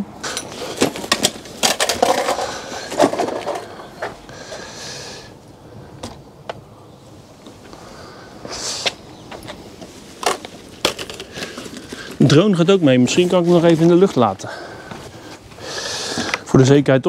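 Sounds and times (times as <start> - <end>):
bags and items being handled: 0.2 - 4.3, 8.4 - 15.6
hissing rustle: 7.1 - 16.4.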